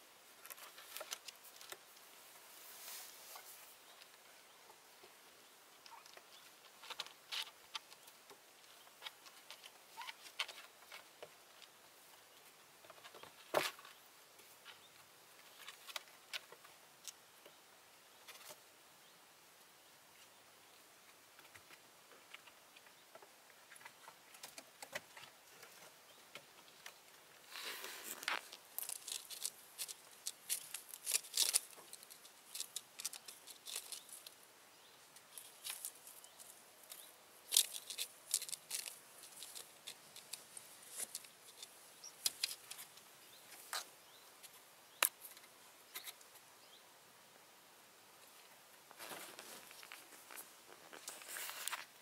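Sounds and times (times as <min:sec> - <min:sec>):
kittens scratching on wood: 0:27.6 - 0:34.4, 0:35.3 - 0:43.9.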